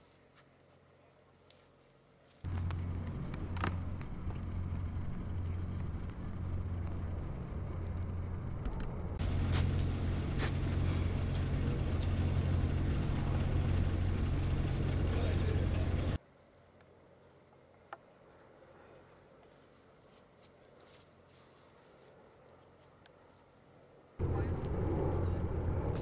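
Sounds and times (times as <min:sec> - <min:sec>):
engine humming: 0:02.4 - 0:16.2, 0:24.2 - 0:26.0.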